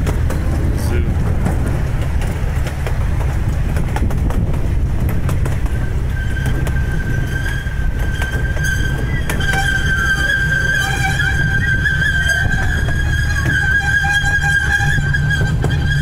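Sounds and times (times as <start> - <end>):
miniature train rolling on track: 0.0 - 16.0.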